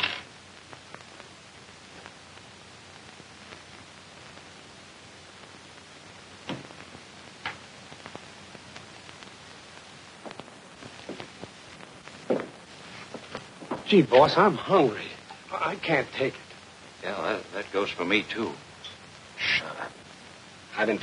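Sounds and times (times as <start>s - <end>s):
old film soundtrack hiss: 0.0s - 21.0s.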